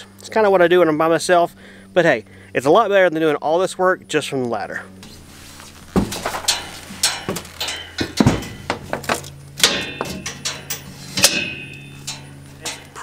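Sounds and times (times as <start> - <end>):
low hum: 0.0 - 13.0
knocks and clanks of steel cage: 5.9 - 13.0.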